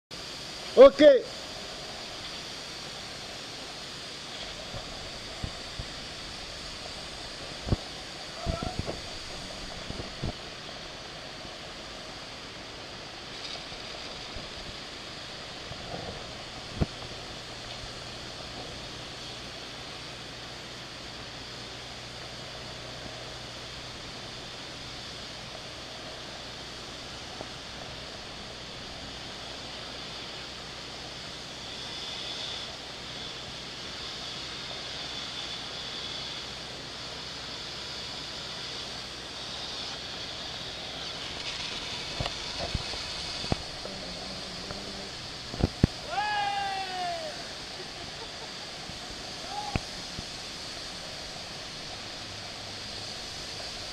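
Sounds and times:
compressed air hissing: 0.1 - 53.9.

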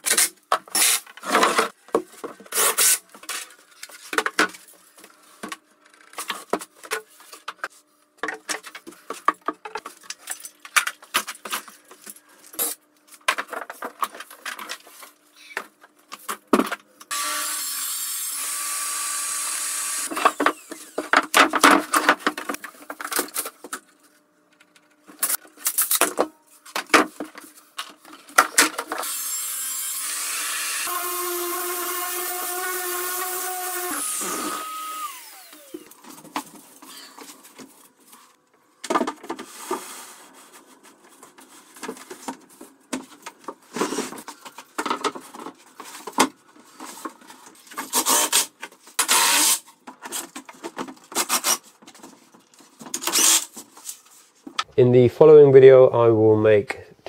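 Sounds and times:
track saw cutting board: 17.1 - 21.2, 28.9 - 36.0.

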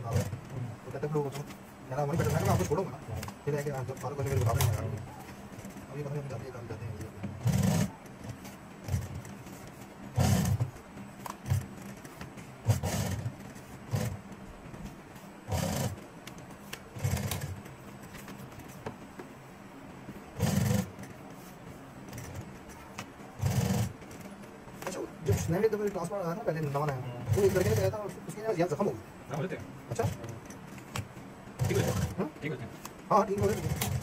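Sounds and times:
sewing machine stitching leather: 0.0 - 0.6, 2.1 - 2.8, 3.7 - 5.0, 7.4 - 9.6, 10.2 - 10.7, 11.4 - 14.2, 15.5 - 16.0, 16.9 - 17.6, 20.4 - 21.1, 23.4 - 24.3, 24.9 - 25.8, 27.2 - 28.8, 31.6 - 34.0.

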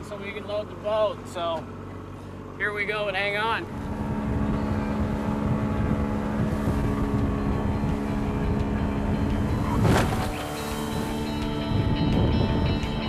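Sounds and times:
outboard motor running: 0.0 - 13.0
wind and water rushing: 3.6 - 12.8.

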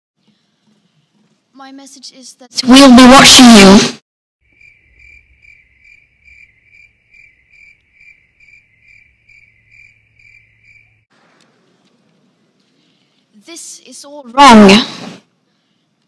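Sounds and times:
cricket chirping: 4.4 - 11.1.

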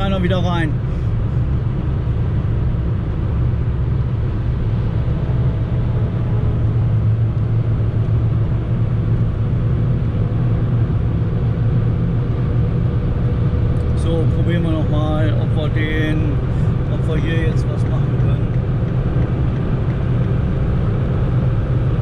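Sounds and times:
car interior road drone: 0.0 - 22.0.

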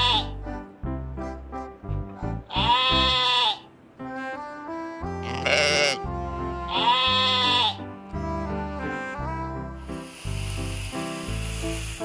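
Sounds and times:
sheep bleating: 0.0 - 0.4, 2.5 - 3.7, 5.2 - 6.0, 6.7 - 7.8
background music: 0.0 - 12.0.

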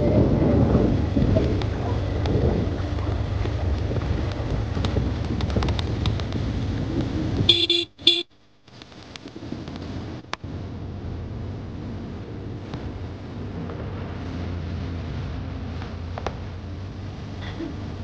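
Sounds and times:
wind on microphone: 0.0 - 8.2, 9.0 - 18.0
vehicle rumbling on gravel: 0.0 - 18.0
short horn toots: 7.5 - 8.3.

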